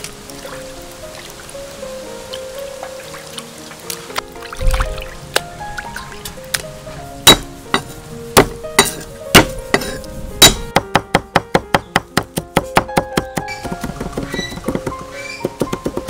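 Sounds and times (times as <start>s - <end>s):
background music: 0.0s - 16.0s
rapid knife chopping: 10.4s - 16.0s.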